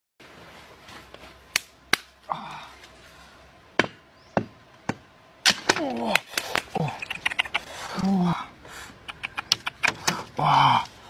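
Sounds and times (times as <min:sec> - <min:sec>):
sharp knocks: 0:03.8 - 0:05.8.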